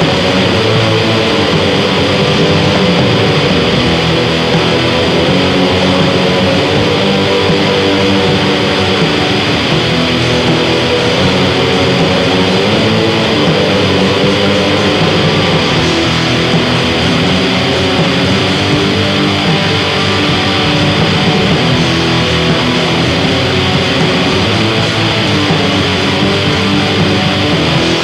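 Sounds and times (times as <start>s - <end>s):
distorted electric guitar chords: 0.0s - 28.0s.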